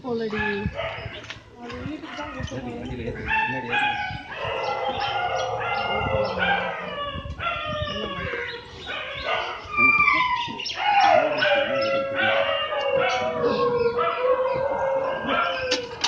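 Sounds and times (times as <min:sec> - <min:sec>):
dog yelping and whining: 0:03.8 - 0:16.0.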